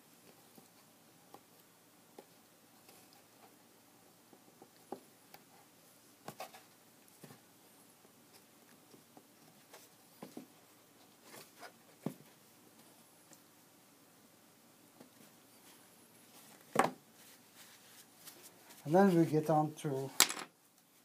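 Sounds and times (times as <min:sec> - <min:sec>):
cloth and board taps and scrapes: 0:16.5 - 0:18.4.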